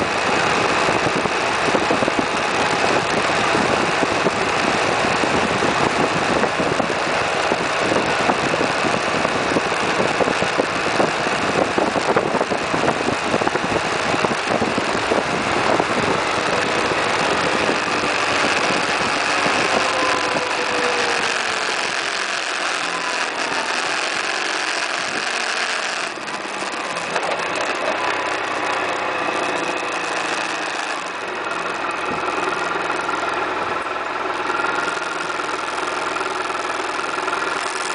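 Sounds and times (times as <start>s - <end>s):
wind rushing over microphone: 0.0s - 23.7s
scooter engine running: 0.0s - 37.9s.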